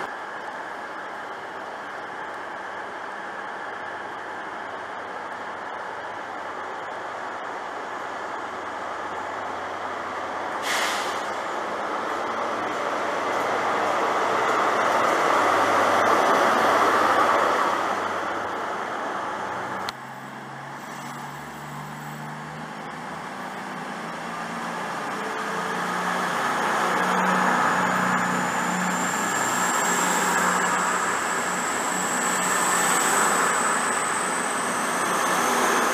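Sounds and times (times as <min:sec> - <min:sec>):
diesel engines humming: 0:00.0 - 0:35.9
diesel train rumbling past: 0:00.0 - 0:35.9
short hiss of air: 0:10.6 - 0:11.4
high whine: 0:20.8 - 0:35.9.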